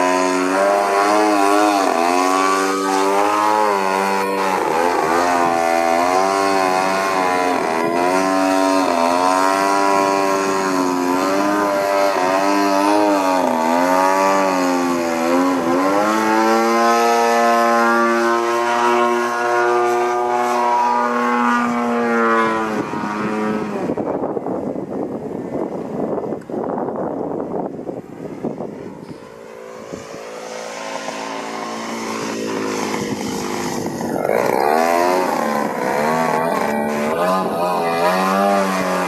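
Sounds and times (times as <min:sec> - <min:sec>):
model airplane engine and propeller: 0:00.0 - 0:39.0.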